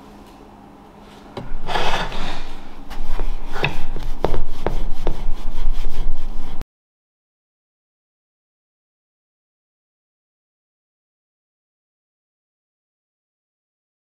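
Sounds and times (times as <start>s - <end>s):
steel wool scraping skull: 1.5s - 6.6s.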